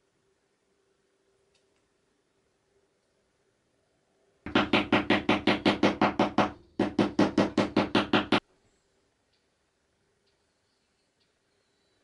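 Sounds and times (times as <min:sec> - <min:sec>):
rapid evenly spaced knocks: 0:04.5 - 0:08.4.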